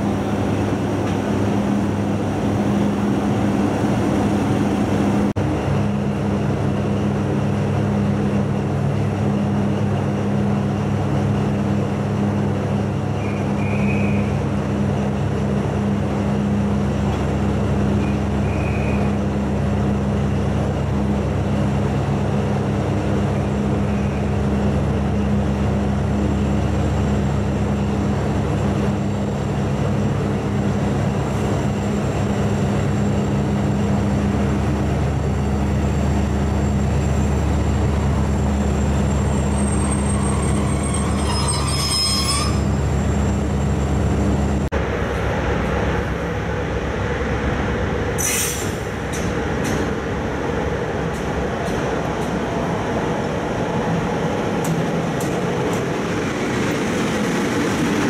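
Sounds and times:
train wheels rumbling on rails: 0:00.0 - 0:58.0
wheels squealing on rails: 0:12.9 - 0:14.6, 0:17.9 - 0:19.4, 0:23.4 - 0:24.7, 0:30.9 - 0:44.6, 0:48.2 - 0:50.0.

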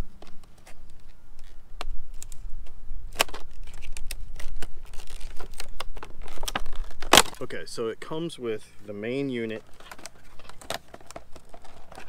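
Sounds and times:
plastic packaging crackling: 0:03.1 - 0:07.5, 0:09.4 - 0:12.0.

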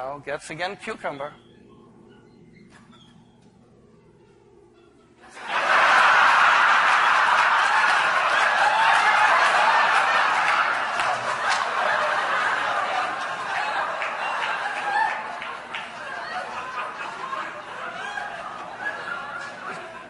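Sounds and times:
audience laughing: 0:05.2 - 0:20.0.

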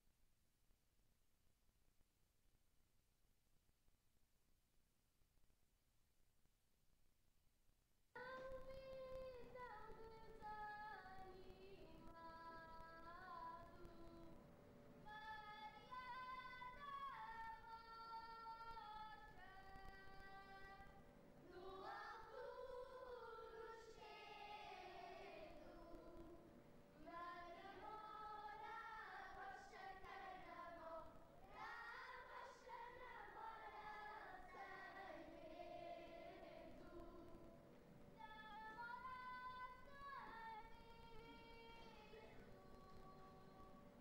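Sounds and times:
children's choir singing: 0:21.5 - 0:37.6.

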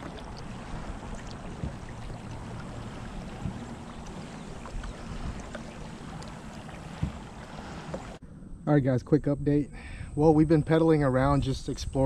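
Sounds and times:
water moving along a hull: 0:00.0 - 0:08.2
steady low rumble: 0:00.0 - 0:11.4.

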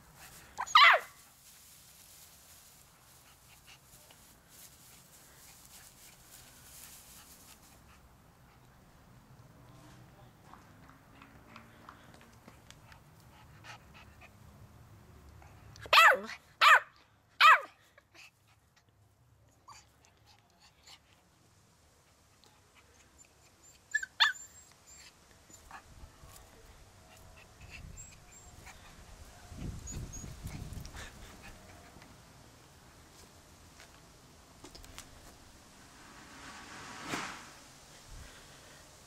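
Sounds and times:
puppy yapping: 0:00.6 - 0:01.2, 0:15.9 - 0:17.7.

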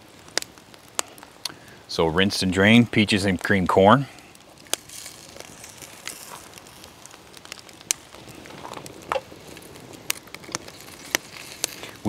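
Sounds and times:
campfire crackling: 0:00.0 - 0:12.0
sharp fire pops: 0:00.0 - 0:12.0
soft rustle: 0:04.3 - 0:12.0.

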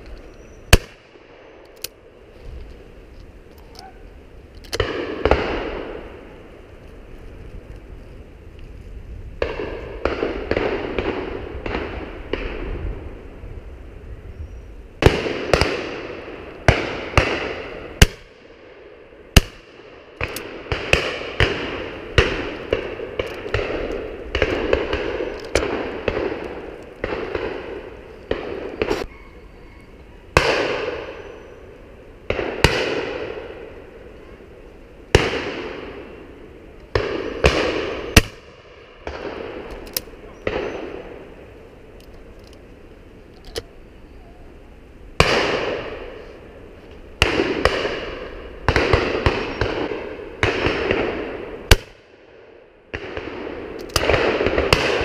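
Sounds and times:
shotguns firing: 0:04.7 - 0:05.9, 0:19.4 - 0:29.0, 0:36.9 - 0:39.8, 0:47.2 - 0:51.9, 0:52.9 - 0:55.0.

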